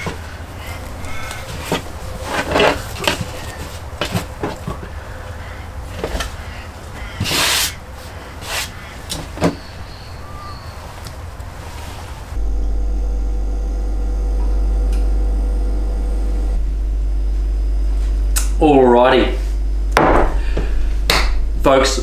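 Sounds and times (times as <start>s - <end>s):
knife and hands scraping on plastic: 1.3s - 4.8s
steady low rumble: 12.2s - 22.0s.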